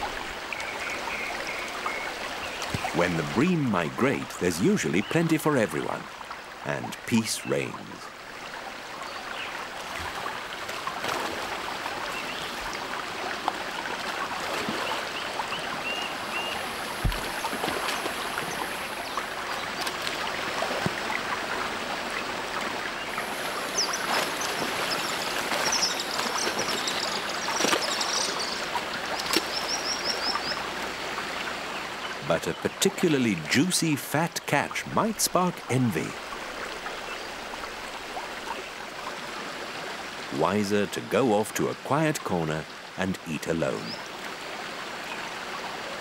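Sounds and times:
water splashes: 0.0s - 46.0s
river water rushing over rapids: 6.0s - 41.1s.

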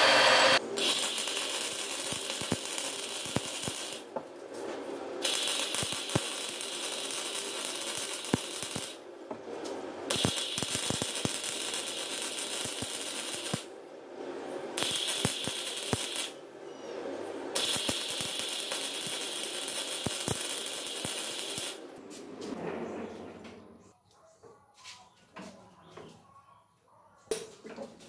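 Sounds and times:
welder arc crackling and hissing: 0.0s - 4.1s, 5.2s - 9.0s, 10.1s - 13.7s, 14.8s - 16.4s, 17.5s - 21.9s.

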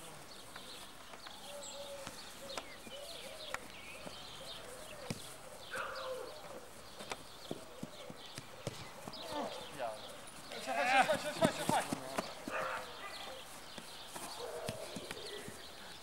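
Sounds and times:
birds chirping: 0.0s - 16.0s
football kicked on grass: 4.9s - 6.0s, 7.0s - 9.4s, 13.5s - 15.7s.

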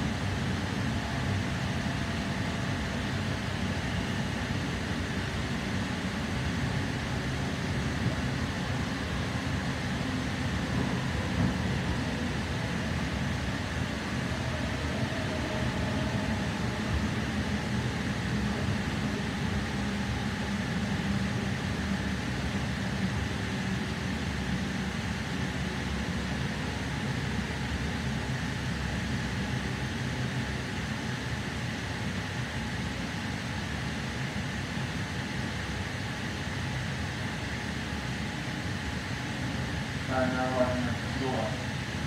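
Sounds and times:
train carriage rumble: 0.0s - 42.0s.

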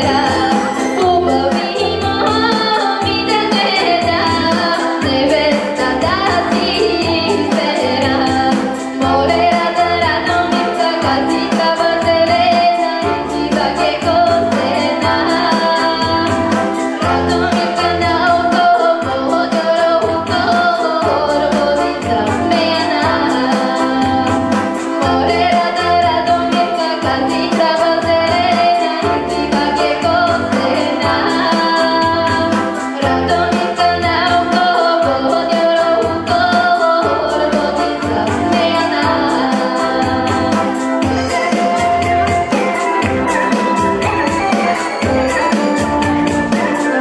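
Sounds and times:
girl singing a folk song: 0.0s - 16.3s, 17.1s - 24.2s, 25.0s - 40.5s
pulsing bass beat: 0.0s - 18.5s, 37.1s - 47.0s
instrumental accompaniment: 0.0s - 47.0s.

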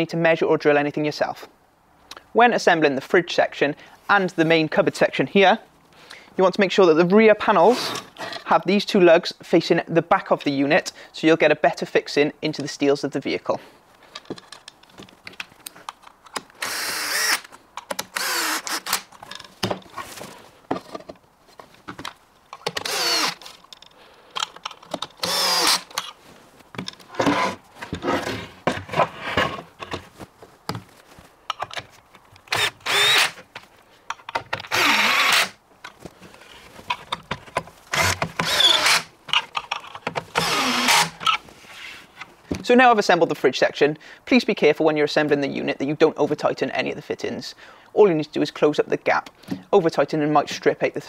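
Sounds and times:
cordless drill driving screws: 16.6s - 19.1s, 22.6s - 23.4s, 25.2s - 26.1s, 32.5s - 33.4s, 34.7s - 35.6s, 37.9s - 39.1s, 40.3s - 41.4s.

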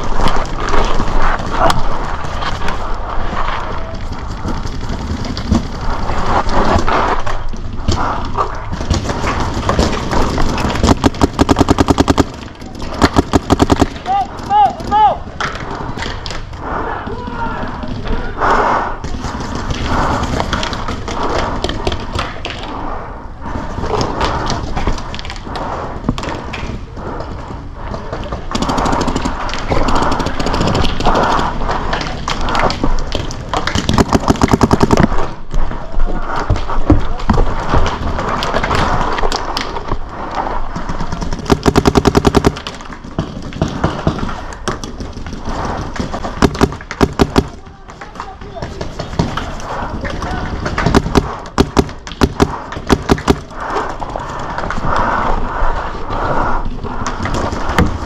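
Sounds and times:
paintball markers firing: 7.8s - 15.0s, 28.1s - 35.4s, 40.7s - 54.0s.

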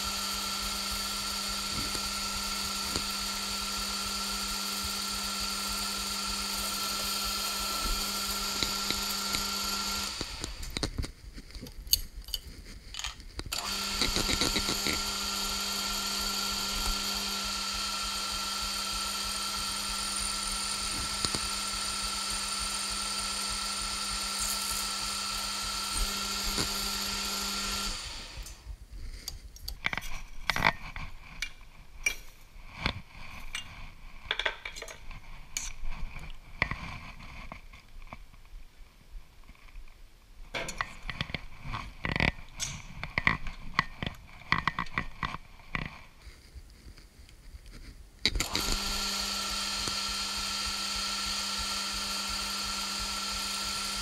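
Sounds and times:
metal lathe whining: 0.0s - 10.9s, 13.5s - 28.6s, 48.3s - 54.0s.

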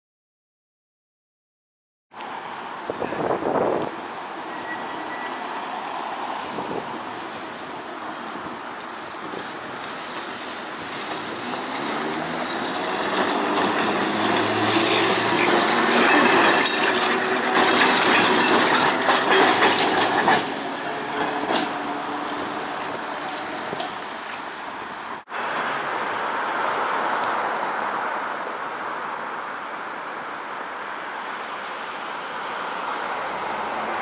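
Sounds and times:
streetcar wheels clattering on rails: 2.5s - 25.3s.

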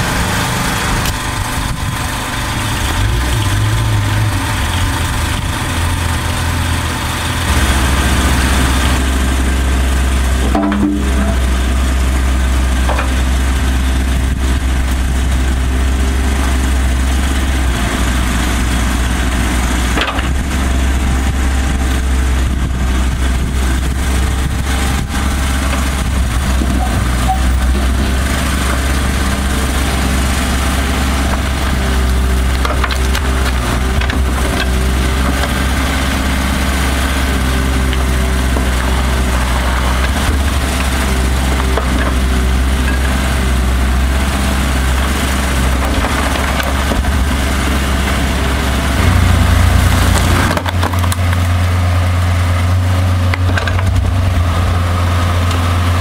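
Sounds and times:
excavator diesel engine running: 0.0s - 56.0s
wood knocking and cracking: 10.4s - 11.4s, 50.0s - 51.6s.

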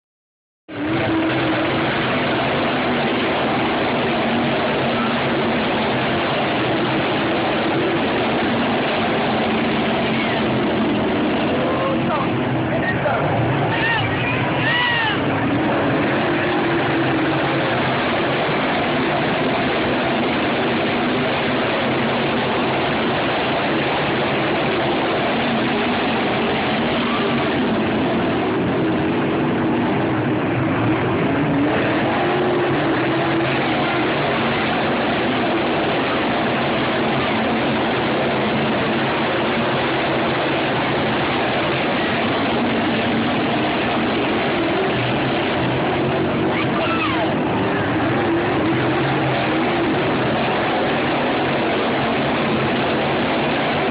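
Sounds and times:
race car engines droning: 0.7s - 53.9s.

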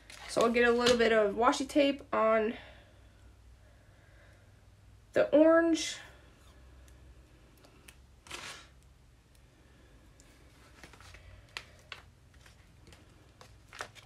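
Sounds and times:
tape ripping rustle: 0.0s - 1.0s, 8.2s - 8.8s, 10.6s - 14.0s.

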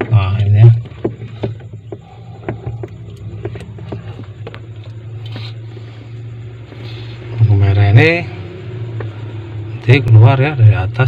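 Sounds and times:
wiring and connectors clicking: 0.0s - 5.6s
steady low hum: 0.0s - 11.0s.

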